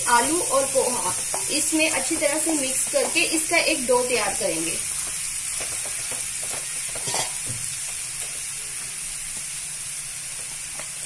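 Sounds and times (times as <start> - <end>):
vegetables sizzling in pan: 0.0 - 11.0
spoon scraping and clicking on pan: 5.6 - 7.5.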